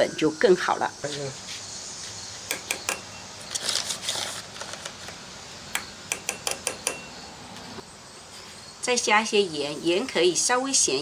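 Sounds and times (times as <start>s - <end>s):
spoon tapping cookware: 2.5s - 3.1s, 5.8s - 7.2s.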